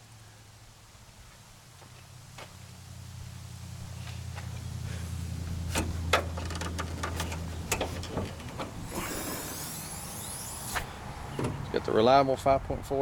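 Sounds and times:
hood latch clicks and knocks: 5.7 - 8.8, 11.3 - 11.7.

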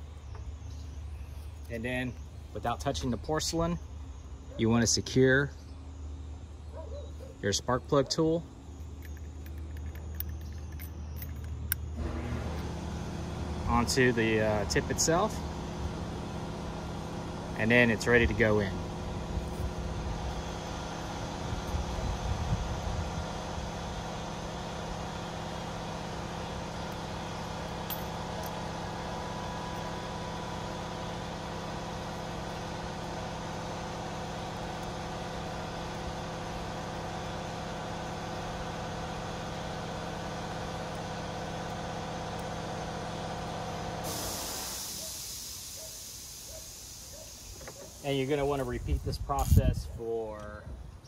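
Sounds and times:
machine hum with tones: 0.0 - 49.8
hiss: 44.0 - 49.6.

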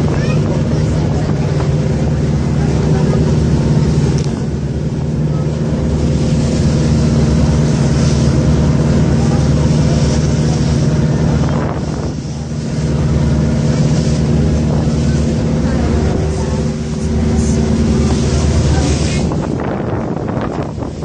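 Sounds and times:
boat engine droning: 0.0 - 21.0
wind on microphone: 0.0 - 21.0.

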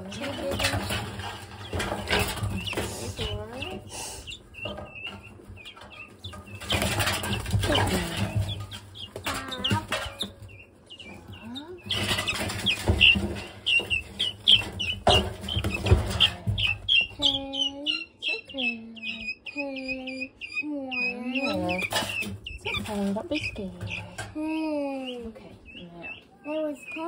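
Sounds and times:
rustling in wood shavings: 0.0 - 17.1
chicks peeping: 0.0 - 27.0.

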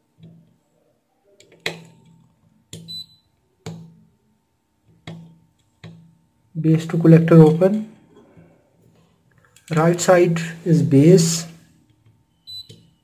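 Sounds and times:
probe tips tapping: 4.9 - 6.2.

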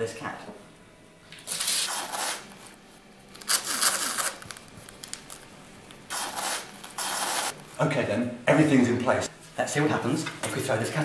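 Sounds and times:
adhesive tape tearing off roll: 3.3 - 5.4, 6.1 - 7.6.

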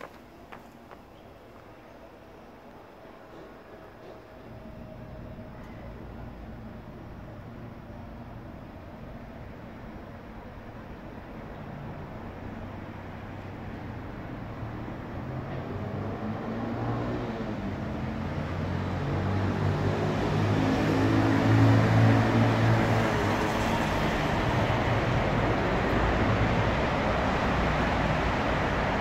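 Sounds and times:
roar of passing cars: 14.6 - 29.0.

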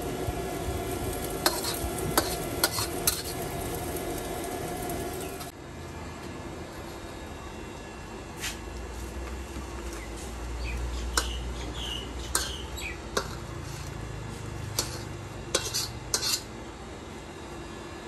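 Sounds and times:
metal utensils clanking on wok: 1.4 - 3.7, 12.3 - 13.5, 14.7 - 16.5.

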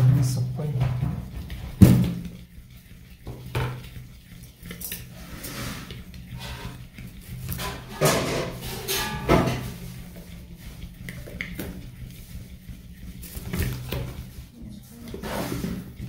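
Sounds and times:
utensils clinking against bowl: 7.5 - 10.0.

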